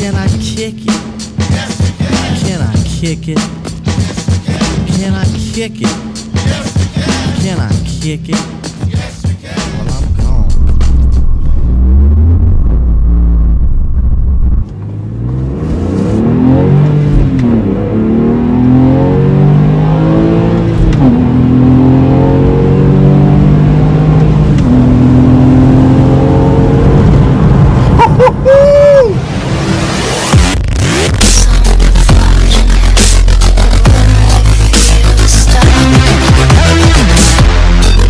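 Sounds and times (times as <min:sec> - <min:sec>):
car engine accelerating: 0:09.8 - 0:38.0
driver whooping: 0:27.7 - 0:38.0.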